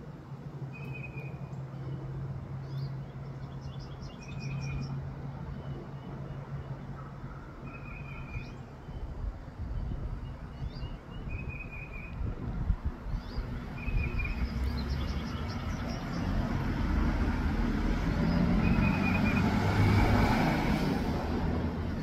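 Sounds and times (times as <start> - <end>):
bird chirps and trills: 0.7 - 12.3, 13.0 - 16.5, 18.2 - 19.6
vehicle passing by rumble: 13.4 - 22.0.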